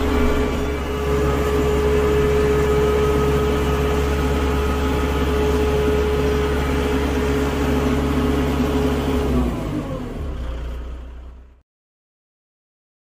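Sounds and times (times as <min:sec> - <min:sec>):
steady high whine: 0:00.0 - 0:08.4
diesel tractor engine running: 0:00.0 - 0:11.6.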